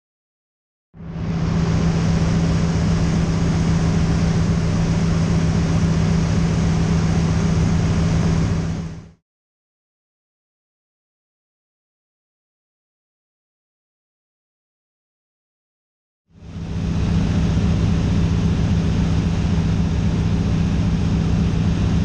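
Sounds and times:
propeller plane engine droning: 0:01.0 - 0:09.2, 0:16.4 - 0:22.0.

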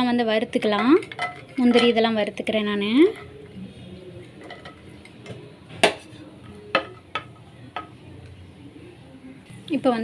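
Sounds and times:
kitchenware knocking against pan: 0:00.6 - 0:02.1.

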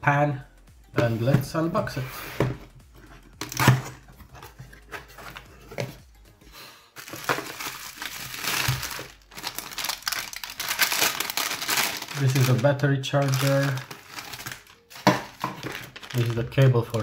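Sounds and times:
bubble wrap crinkling: 0:07.0 - 0:17.0.

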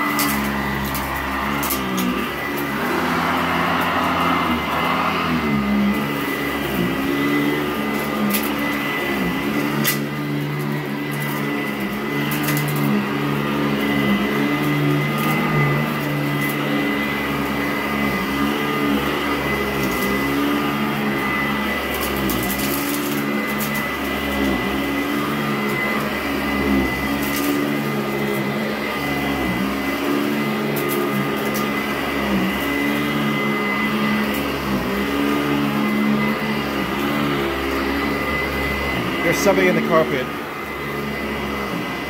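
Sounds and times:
upright vacuum running on carpet: 0:00.0 - 0:42.0
debris crunching through vacuum: 0:00.1 - 0:08.8.

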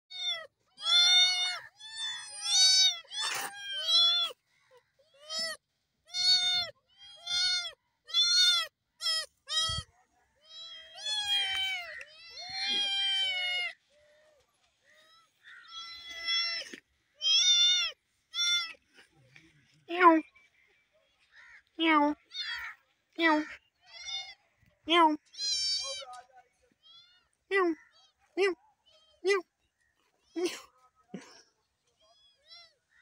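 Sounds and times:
kitten meowing: 0:00.1 - 0:04.4, 0:05.2 - 0:09.8, 0:10.5 - 0:13.7.

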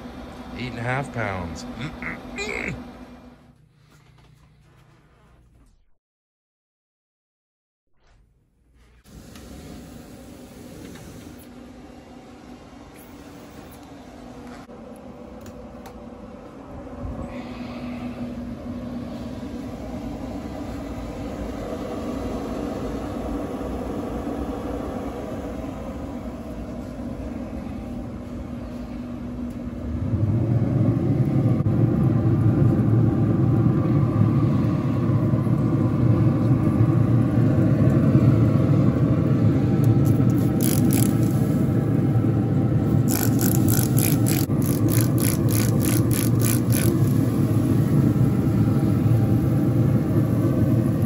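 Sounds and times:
pellet smoker rumbling: 0:14.0 - 0:51.0
spray bottle squirting: 0:40.1 - 0:41.4, 0:43.0 - 0:47.2.

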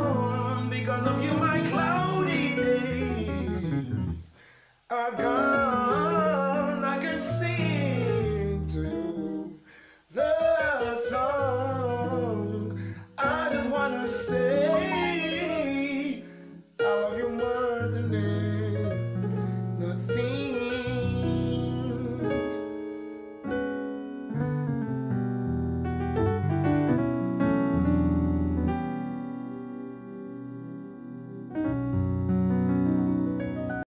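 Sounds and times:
electronic keyboard with bass notes: 0:00.0 - 0:04.3, 0:05.2 - 0:09.5, 0:10.4 - 0:33.9
man singing gospel song: 0:00.0 - 0:22.9.

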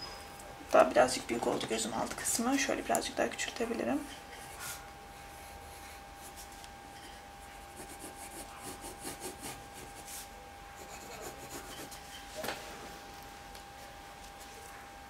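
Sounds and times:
pencil scratching on paper: 0:07.6 - 0:12.1.

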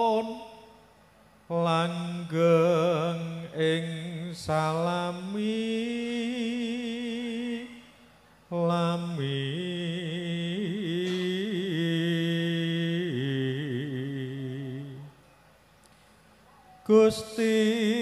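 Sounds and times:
man chanting a prayer: 0:16.8 - 0:18.0.

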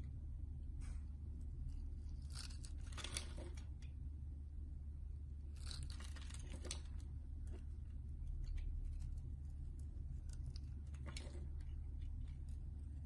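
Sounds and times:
blade scraping soap: 0:02.0 - 0:03.4.

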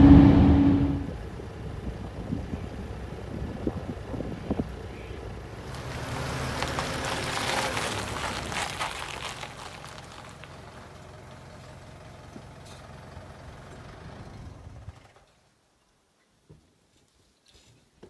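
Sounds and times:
vehicle engine idling: 0:00.0 - 0:15.1
tyres crunching on gravel: 0:05.6 - 0:12.0.

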